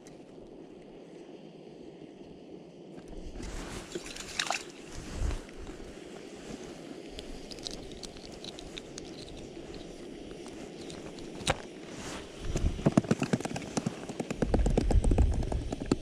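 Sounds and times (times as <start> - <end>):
water and slush sloshing: 3.1 - 12.6.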